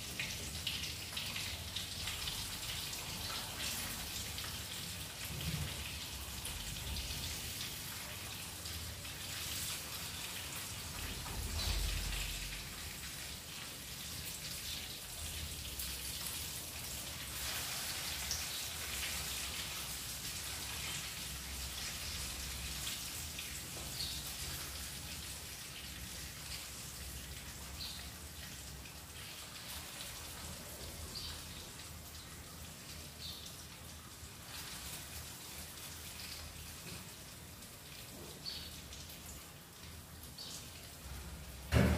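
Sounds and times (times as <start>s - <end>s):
fish sizzling in oil: 15.1s - 25.5s.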